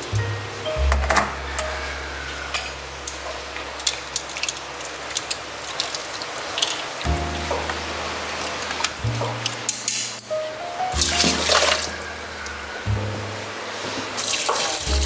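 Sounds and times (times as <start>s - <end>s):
chopsticks stirring in water: 2.4s - 7.0s.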